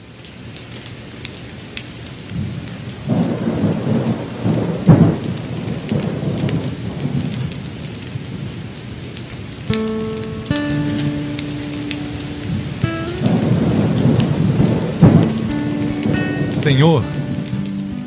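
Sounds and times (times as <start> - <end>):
rain: 0.0 - 18.0
rolling thunder: 2.4 - 8.5, 12.5 - 17.5
musical note: 9.7 - 18.0.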